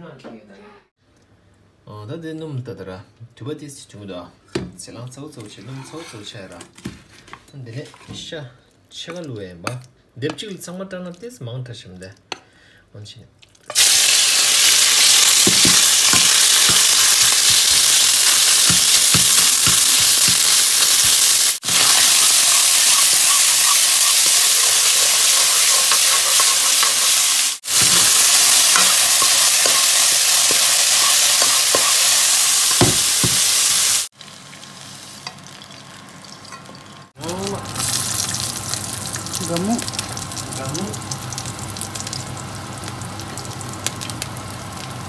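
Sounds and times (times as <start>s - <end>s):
meat sizzling in a wok: 13.7s - 45.0s
metal ladle scraping a pan: 21.7s - 32.8s.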